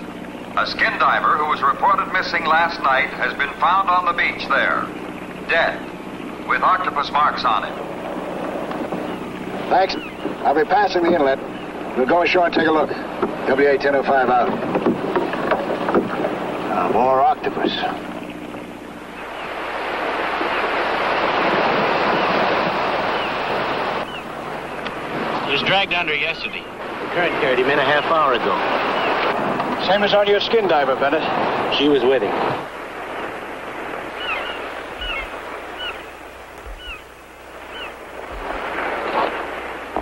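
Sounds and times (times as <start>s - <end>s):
ocean surf on rocky shore: 0.0s - 40.0s
bird cries: 4.2s - 6.7s, 7.8s - 12.0s, 17.9s - 19.6s, 22.0s - 25.6s, 26.4s - 29.4s, 34.0s - 38.2s.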